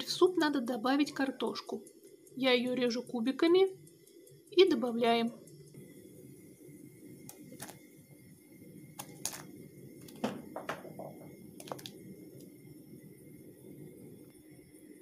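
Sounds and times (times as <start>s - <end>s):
soup boiling: 5.8s - 14.6s.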